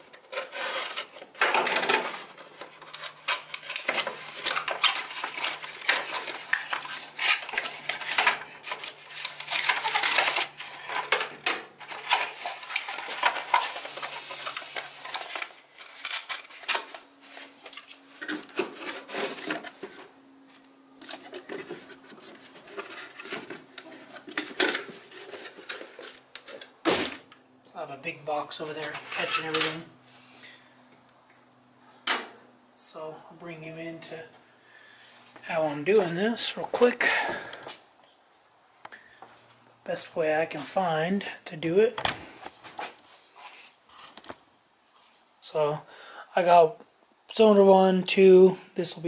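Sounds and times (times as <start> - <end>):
metal parts and tools clinking: 28.9 - 29.8.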